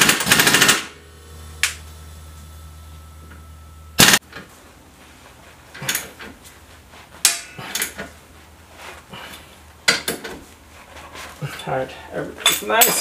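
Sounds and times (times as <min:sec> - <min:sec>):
hand tools clinking on metal: 0:12.4 - 0:13.0.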